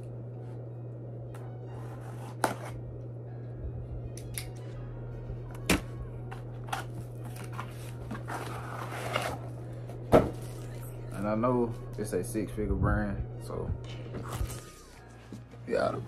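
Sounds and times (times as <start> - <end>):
low hum: 0.0 - 16.0
cardboard box rustling and scraping: 7.6 - 9.5.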